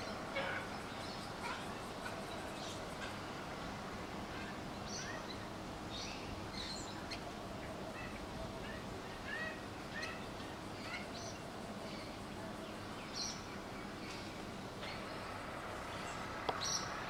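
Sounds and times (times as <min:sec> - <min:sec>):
background hiss: 0:00.0 - 0:17.0.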